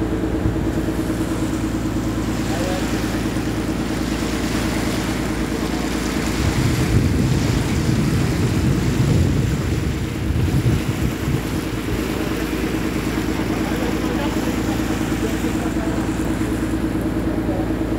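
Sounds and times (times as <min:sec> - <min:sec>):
boat engine running: 0:00.0 - 0:17.9
water rushing past hull: 0:00.0 - 0:17.9
wind buffeting microphone: 0:03.0 - 0:14.2.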